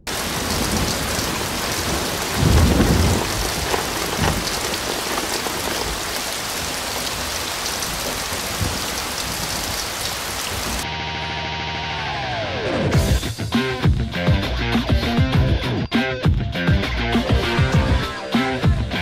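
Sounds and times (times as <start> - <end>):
heavy rain pouring: 0.0 - 10.8
low thunder rumble: 0.1 - 10.8.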